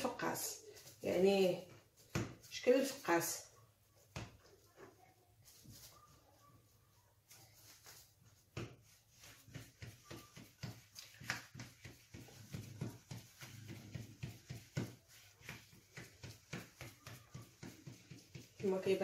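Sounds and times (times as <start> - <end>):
hands patting dough on table: 0.3 - 3.3, 7.6 - 19.0.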